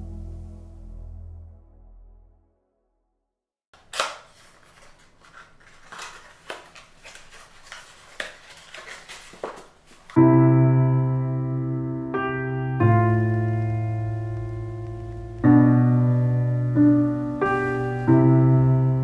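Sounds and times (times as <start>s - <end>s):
piano music: 0.0s - 2.7s, 10.2s - 19.0s
paper packaging rustling: 3.8s - 10.2s.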